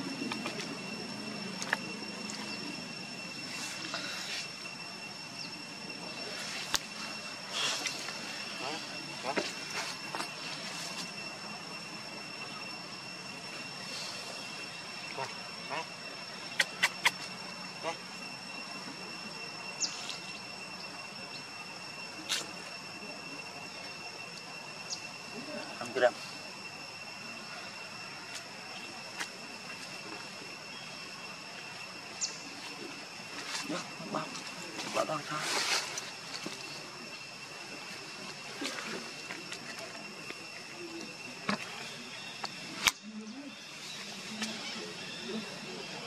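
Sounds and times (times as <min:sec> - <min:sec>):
high-pitched insect drone: 0:00.0 - 0:46.0
high-pitched whine: 0:00.0 - 0:46.0.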